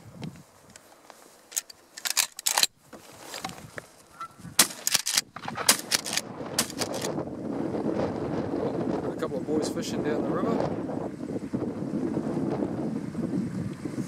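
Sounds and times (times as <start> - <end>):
geese honking: 4.1 - 4.5.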